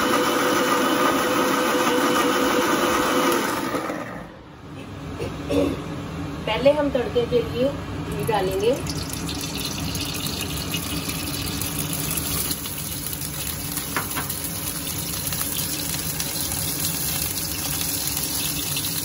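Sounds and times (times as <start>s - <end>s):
kitchen background rushing: 8.6s - 19.0s.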